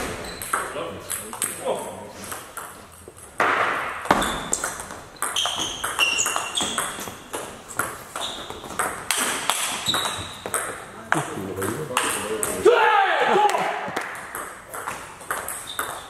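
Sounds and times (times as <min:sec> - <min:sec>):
shoes squeaking on floor: 0:00.0 - 0:00.7, 0:04.1 - 0:10.7, 0:15.5 - 0:16.0.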